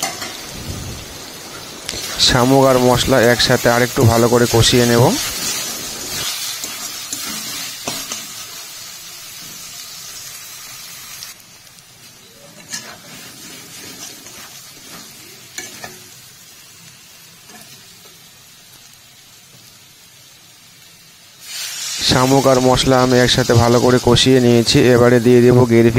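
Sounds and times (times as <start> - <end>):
food sizzling in hot oil: 0.0 - 25.9
spatula scraping the pan: 5.2 - 8.4, 12.5 - 16.0.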